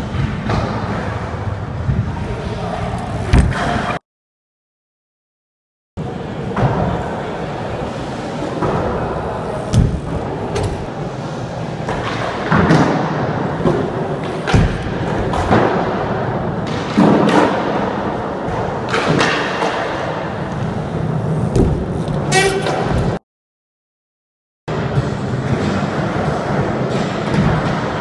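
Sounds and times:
hard landing thumps: 0:03.3 - 0:03.9, 0:21.5 - 0:22.0.

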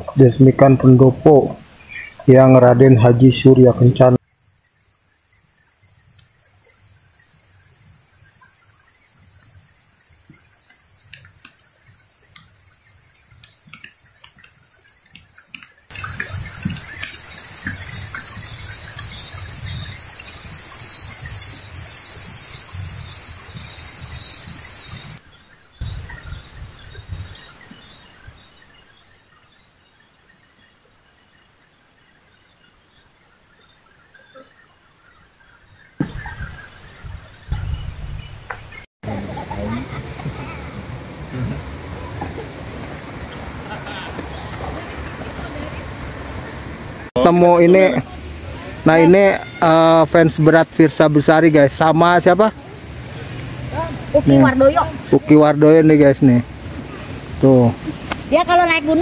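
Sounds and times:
insects chorus calling: 0:00.1 - 0:29.6, 0:34.7 - 0:59.0
faint bird chirps: 0:11.6 - 0:38.8.

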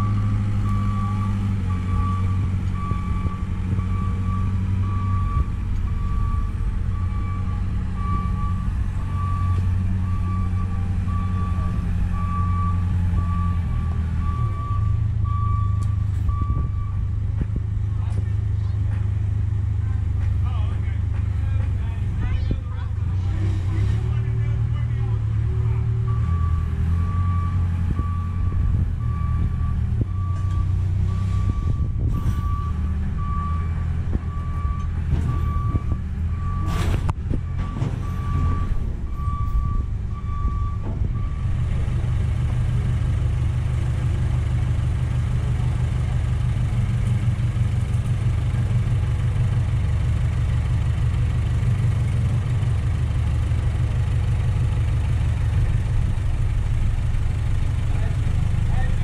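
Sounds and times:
reversing alarm beeping: 0:00.0 - 0:17.1, 0:26.1 - 0:36.9, 0:37.5 - 0:41.6
heavy vehicle engine running: 0:00.0 - 0:59.0.

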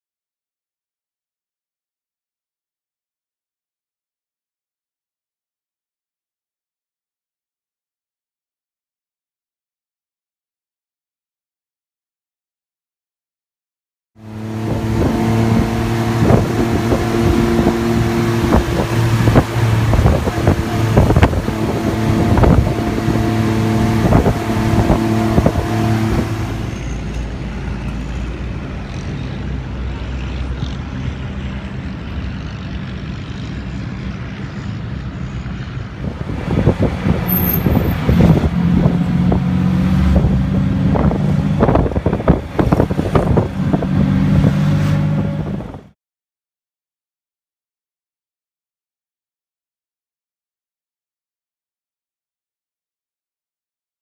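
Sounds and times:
engine hum with knocks: 0:14.2 - 0:29.2, 0:30.0 - 0:45.9
auto rickshaw engine in traffic: 0:14.2 - 0:46.0
low engine drone: 0:14.2 - 0:46.0.

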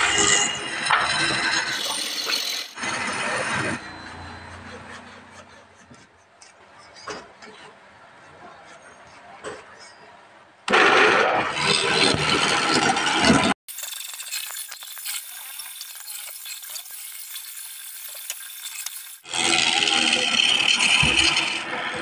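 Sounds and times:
lathe chisel scraping wood: 0:00.9 - 0:07.8, 0:11.3 - 0:22.0.

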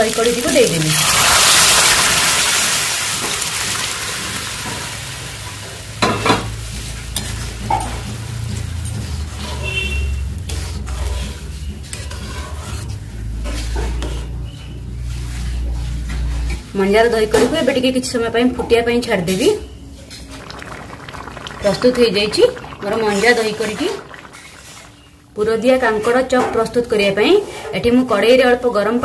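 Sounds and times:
liquid sizzling in hot oil: 0:00.0 - 0:14.2, 0:20.1 - 0:25.6
stirring curry: 0:06.6 - 0:16.5.

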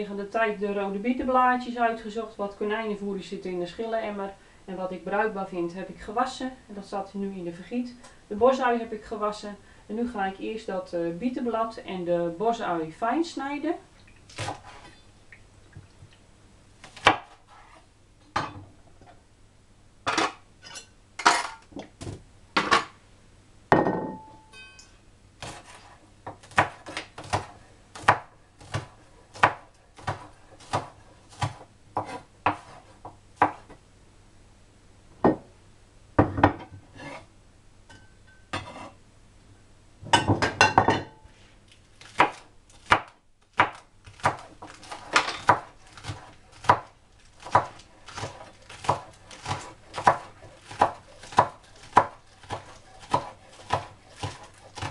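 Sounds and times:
knife chopping on wooden board: 0:25.4 - 0:33.7, 0:42.2 - 0:54.9.

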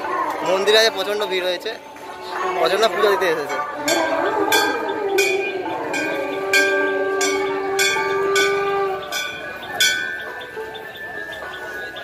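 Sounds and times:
bell striking: 0:03.8 - 0:11.8.

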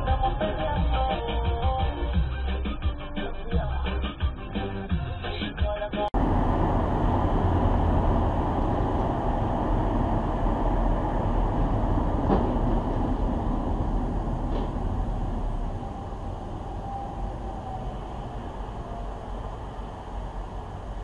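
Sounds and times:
car road and engine rumble: 0:06.2 - 0:21.0.

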